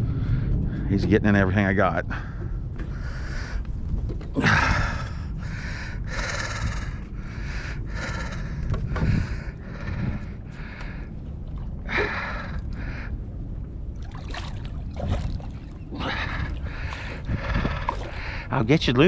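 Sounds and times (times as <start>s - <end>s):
man breathing hard: 0.0s - 0.9s, 2.1s - 13.5s, 15.9s - 18.5s
steady low rumble: 0.0s - 19.0s.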